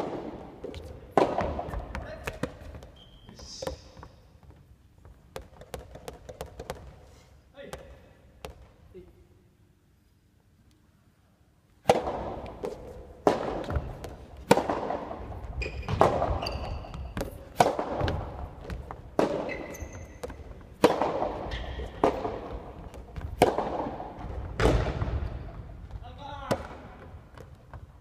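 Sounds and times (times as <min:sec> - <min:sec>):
rubber ball struck by rackets: 0:00.0 - 0:02.6, 0:11.8 - 0:15.2, 0:17.0 - 0:19.6, 0:20.2 - 0:25.4
shoes squeaking on wooden floor: 0:01.7 - 0:05.2, 0:15.4 - 0:20.8.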